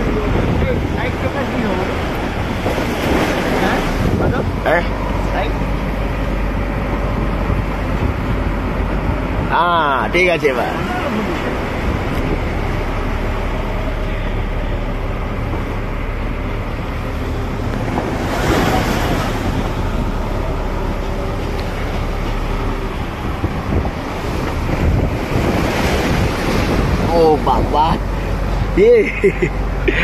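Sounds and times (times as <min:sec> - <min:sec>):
wind buffeting microphone: 0:00.0 - 0:28.8
boat engine running: 0:00.0 - 0:30.0
waves splashing against a boat: 0:00.0 - 0:30.0.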